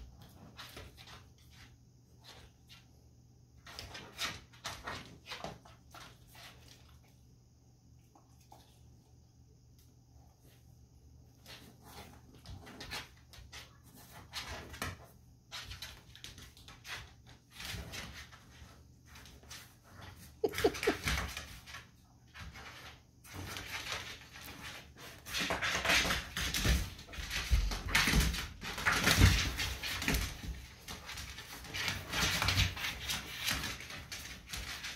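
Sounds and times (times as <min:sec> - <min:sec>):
scuffling on tile floor: 0:08.1 - 0:34.9
animals snuffling: 0:16.6 - 0:21.8.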